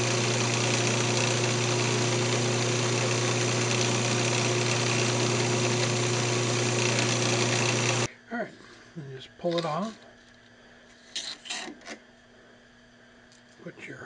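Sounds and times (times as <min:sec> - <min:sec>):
wood lathe motor humming: 0:00.0 - 0:08.1.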